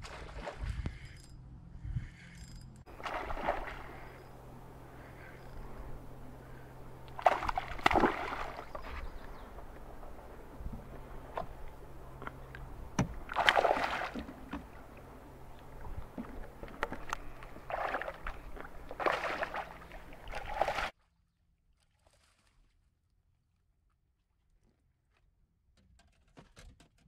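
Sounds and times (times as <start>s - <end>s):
water splashing and sloshing: 0.0s - 1.0s, 2.9s - 21.0s, 21.7s - 22.9s.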